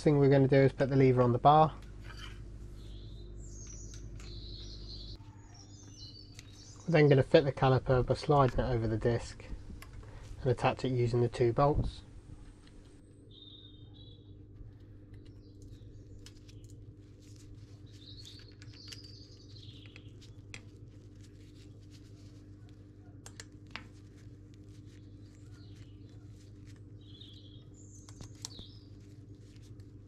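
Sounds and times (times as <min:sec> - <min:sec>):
steady low hum: 0:00.0 - 0:30.0
faint bird chirps: 0:02.2 - 0:07.0, 0:13.1 - 0:16.8.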